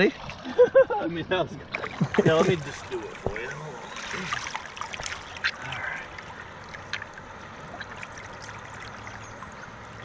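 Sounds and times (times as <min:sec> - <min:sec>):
river current trickling: 0:00.0 - 0:10.0
sharp splashes: 0:01.7 - 0:05.9.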